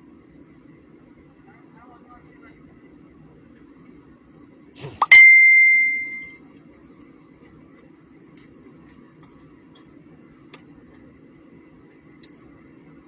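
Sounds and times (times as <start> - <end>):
ringing ding: 5.0 - 6.4.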